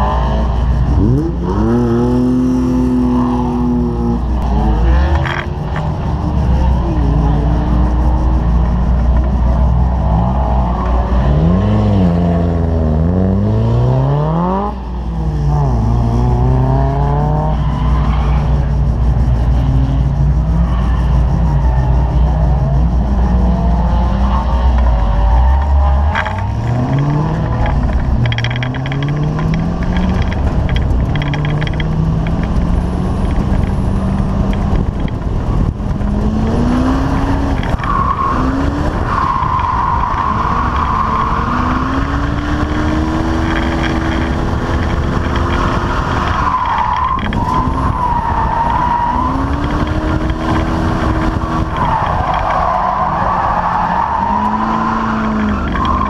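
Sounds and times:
car engine revving hard: 0:22.8 - 0:46.6
tyres squealing: 0:36.0 - 0:56.0.

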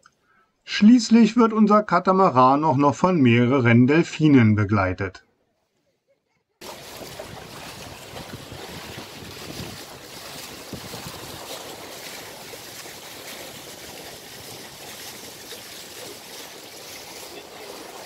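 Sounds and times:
water rushing along a hull: 0:06.6 - 0:18.0
wind buffeting microphone: 0:06.6 - 0:18.0.

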